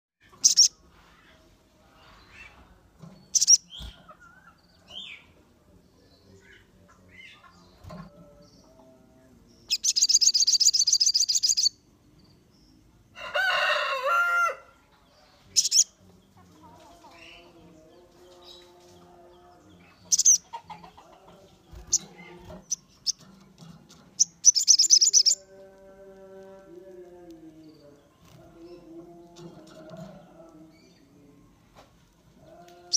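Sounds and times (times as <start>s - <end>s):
birds chirping: 0.2s - 32.9s
bird trills: 0.4s - 0.8s, 3.3s - 4.0s, 9.7s - 11.7s, 24.2s - 25.5s.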